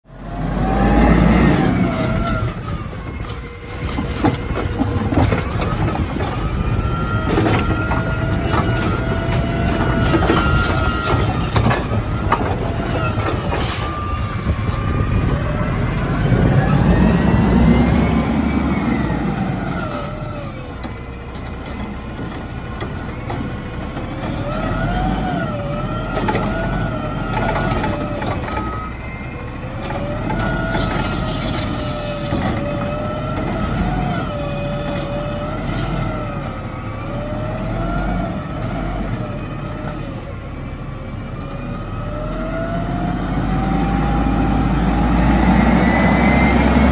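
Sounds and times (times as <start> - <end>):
diesel truck engine revving: 0.0 - 46.9
hydraulic whine: 0.5 - 23.2.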